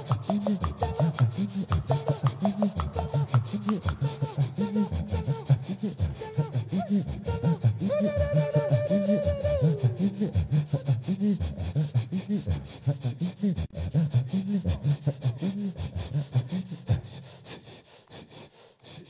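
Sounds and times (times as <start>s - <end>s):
sung vocal bass line: 0.0s - 12.8s
mouth percussion clicks: 0.0s - 19.0s.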